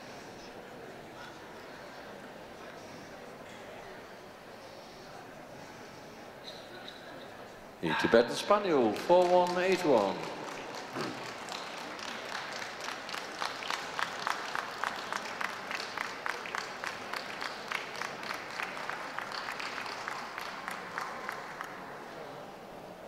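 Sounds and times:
audience applauding: 7.9s - 22.2s.

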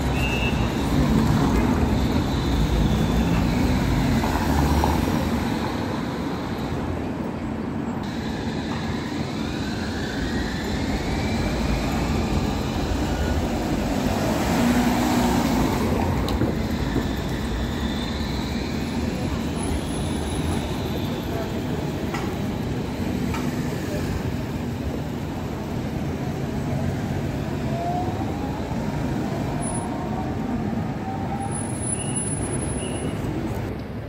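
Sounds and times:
street traffic: 0.0s - 34.0s
tram passing: 0.0s - 34.0s
tram whine gliding in pitch: 0.0s - 34.0s.

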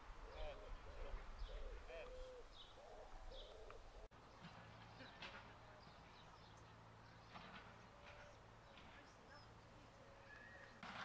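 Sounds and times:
pigeon cooing: 0.2s - 4.1s
small birds chirping: 0.2s - 10.8s.

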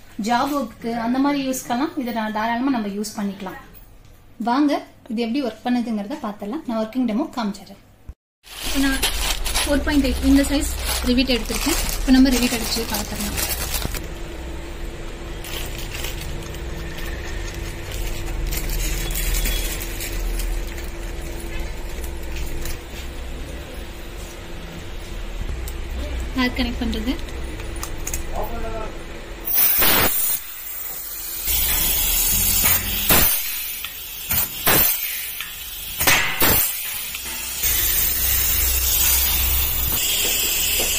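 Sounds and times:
rivet gun exhaust hiss: 29.4s - 40.9s
air hose hissing: 29.5s - 40.9s.

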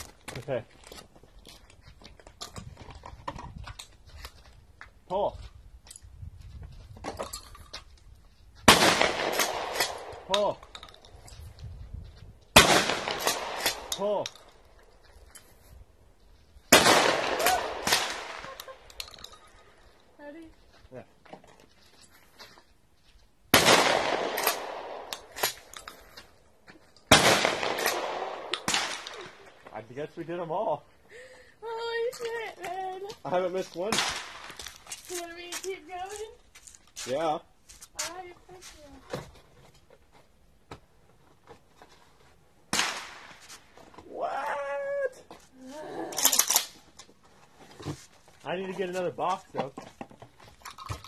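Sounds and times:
shotgun shots with echo: 8.7s - 10.3s, 12.6s - 13.9s, 16.7s - 18.5s, 23.5s - 25.4s, 27.1s - 29.4s, 33.9s - 34.5s.

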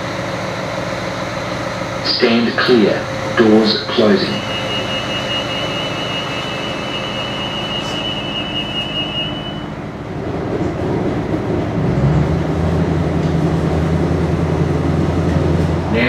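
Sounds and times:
railcar running rumble: 0.0s - 16.0s
low drone: 2.0s - 10.6s
thin high tone: 3.4s - 9.8s.

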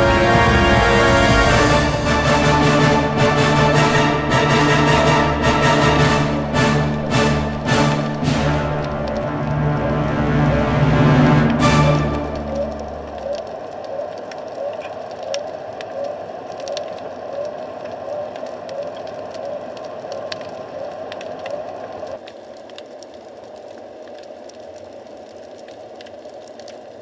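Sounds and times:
underwater clicks and crackle: 7.6s - 10.6s, 12.2s - 27.0s.

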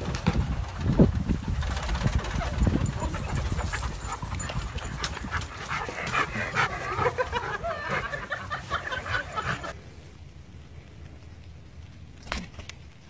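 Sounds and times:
dogs panting: 2.0s - 9.8s
dogs whining and yipping: 2.3s - 9.7s.

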